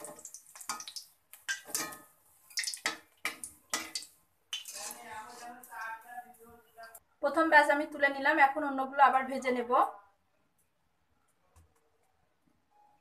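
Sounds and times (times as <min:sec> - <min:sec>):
utensils scraping a frying pan: 0:01.5 - 0:02.1, 0:02.8 - 0:05.7.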